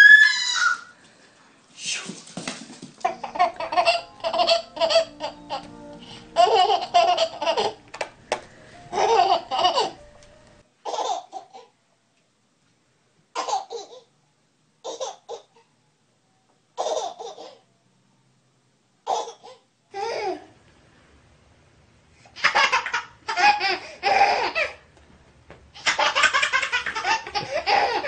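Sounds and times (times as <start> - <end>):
baby laughing: 3.0 - 8.0, 8.9 - 10.1, 10.8 - 11.7, 16.8 - 17.6, 22.3 - 24.8, 25.8 - 28.0.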